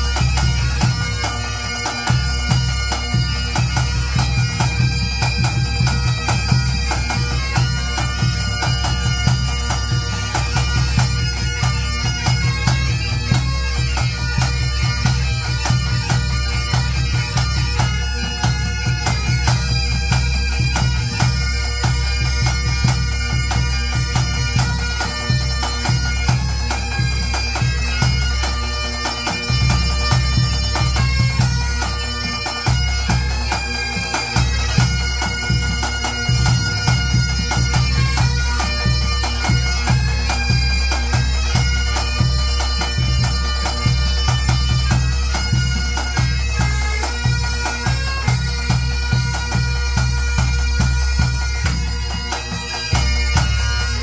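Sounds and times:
bagpipes playing a tune: 0.0s - 54.0s
snare tenor and bass drums: 0.0s - 54.0s.

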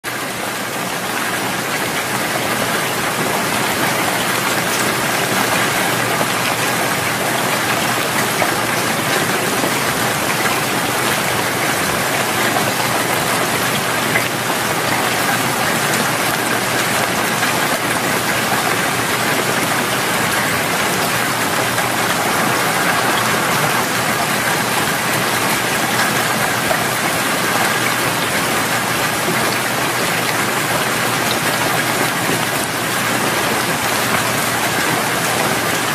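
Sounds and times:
loud steady rain: 0.1s - 35.9s.

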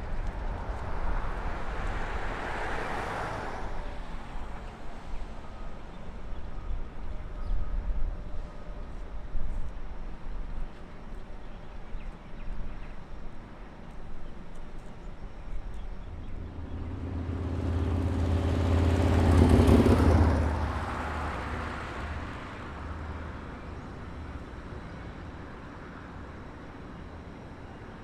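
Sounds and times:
vehicle engine hum: 0.0s - 7.2s, 13.6s - 28.0s.

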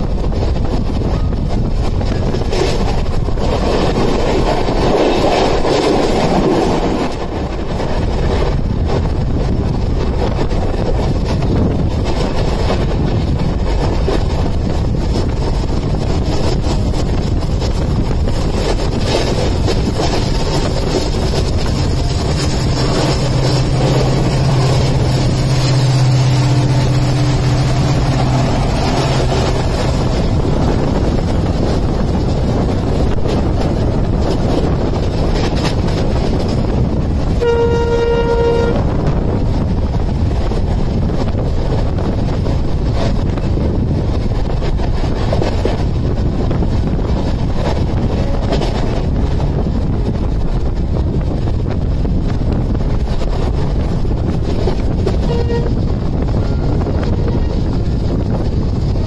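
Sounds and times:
diesel locomotive engine hum: 0.0s - 59.0s
train running rumble: 0.0s - 59.0s
train horn blast: 22.3s - 28.6s, 37.4s - 39.2s, 55.1s - 57.7s.

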